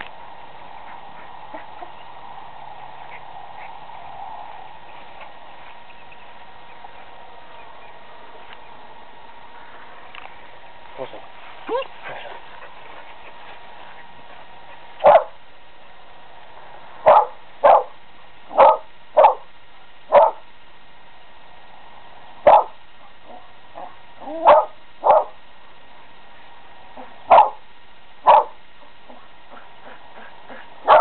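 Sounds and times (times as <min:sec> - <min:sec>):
dog barking: 0:15.0 - 0:15.4, 0:17.0 - 0:19.5, 0:20.1 - 0:20.4, 0:22.4 - 0:25.4, 0:27.0 - 0:27.6, 0:28.2 - 0:31.0
dog yipping: 0:23.3 - 0:25.3, 0:28.3 - 0:28.5.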